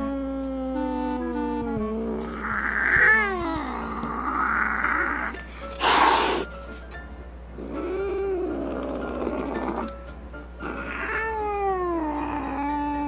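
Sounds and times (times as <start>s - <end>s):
kittens yowling: 2.2s - 6.4s, 10.6s - 13.0s
kitten hissing: 2.2s - 6.5s.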